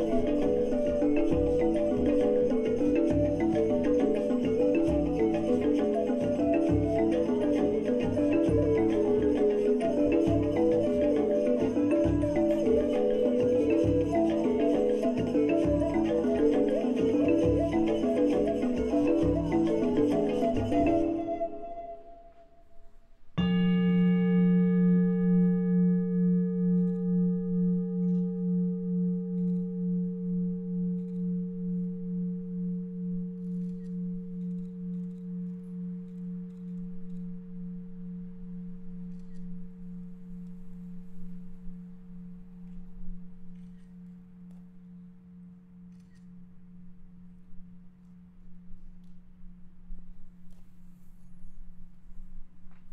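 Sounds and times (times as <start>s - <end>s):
bowl bell ringing: 23.4s - 36.8s.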